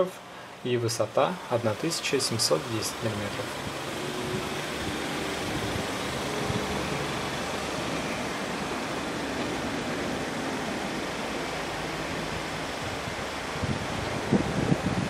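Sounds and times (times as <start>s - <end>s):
wind on microphone: 3.6s - 9.6s, 12.7s - 15.0s.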